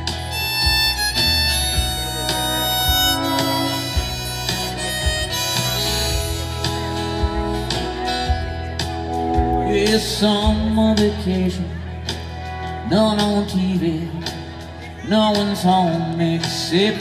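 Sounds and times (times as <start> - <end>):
harmonica lead: 0.0 - 10.4
acoustic guitar: 0.0 - 17.0
drums: 0.0 - 17.0
electric bass: 0.0 - 17.0.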